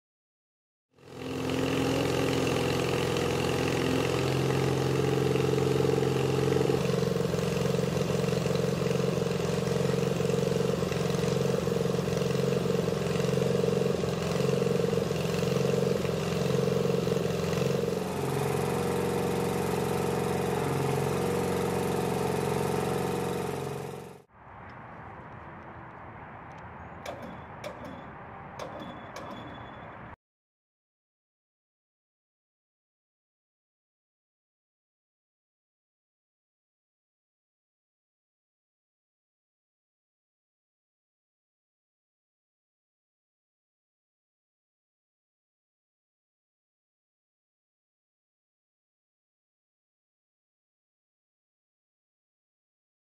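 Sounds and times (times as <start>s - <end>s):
truck engine running: 1.0s - 24.3s, 26.5s - 30.2s.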